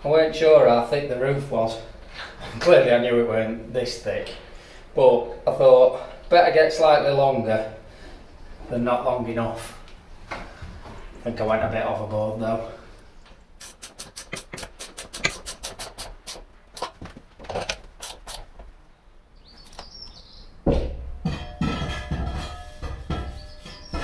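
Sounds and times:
high chirp: 23.3 - 24.0.

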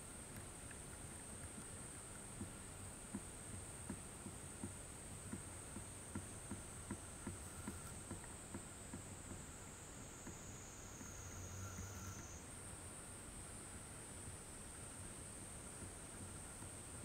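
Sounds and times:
soft low ticks: 0.1 - 9.5, 15.7 - 17.0
high-pitched insect chorus: 9.5 - 12.5.

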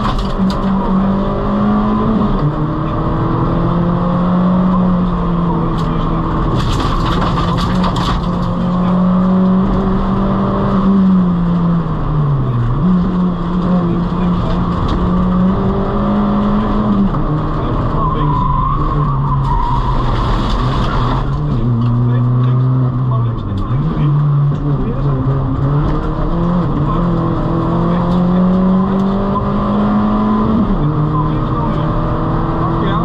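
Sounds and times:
rally car engine at high revs: 0.0 - 33.0
tyre squeal: 17.9 - 21.1.

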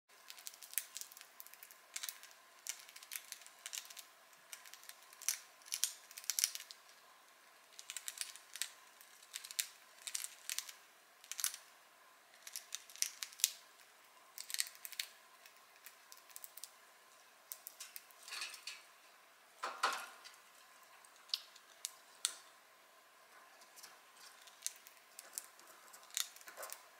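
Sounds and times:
birds crunching on toast: 0.2 - 6.9, 23.4 - 26.9.

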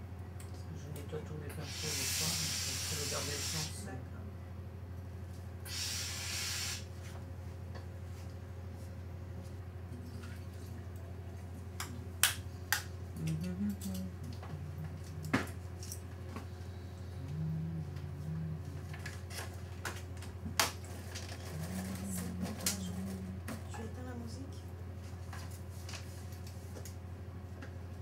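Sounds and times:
steady low hum: 0.0 - 28.0
low voice murmuring: 17.2 - 19.0.

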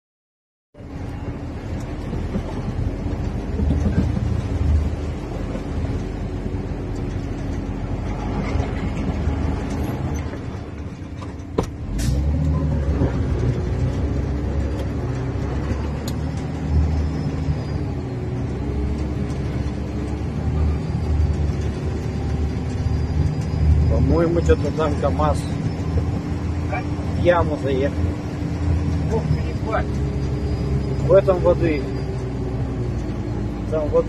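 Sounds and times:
truck engine running under load: 0.8 - 34.0.

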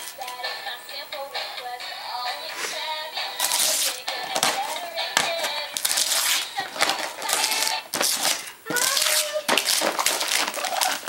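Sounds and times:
wrapping paper tearing and crinkling: 3.4 - 11.0
child's voice: 8.6 - 9.7.

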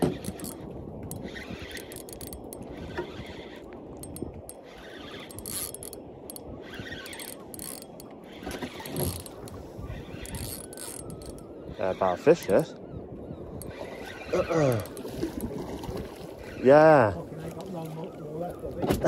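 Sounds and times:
fishing reel cranking: 0.0 - 12.7, 13.6 - 15.5.

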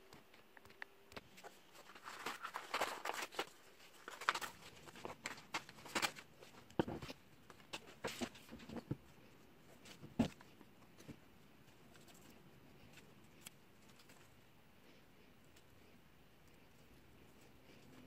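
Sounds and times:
paper rustling and crinkling: 1.2 - 9.0, 9.7 - 14.4.

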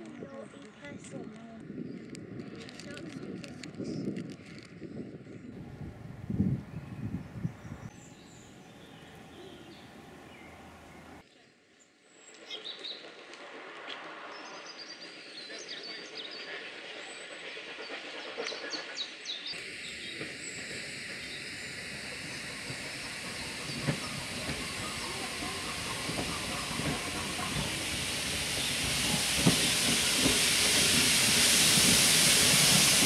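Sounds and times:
birds chirping: 5.6 - 11.2, 19.4 - 33.0
locomotive steam hiss: 5.6 - 11.2, 13.4 - 33.0
steam train approaching: 5.6 - 11.2, 13.1 - 33.0.

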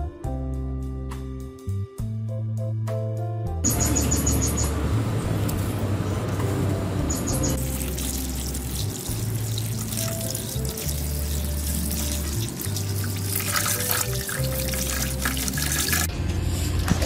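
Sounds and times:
background music with slow bass: 0.0 - 17.0
water splashing in steel bowl: 7.6 - 16.1.

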